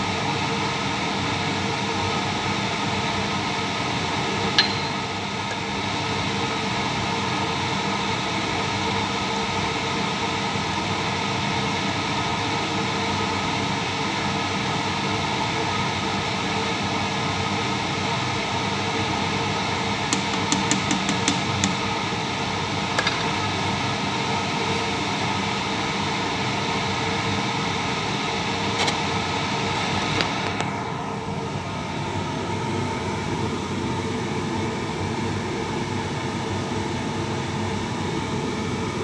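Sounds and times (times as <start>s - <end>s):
fan whir: 0.0s - 39.0s.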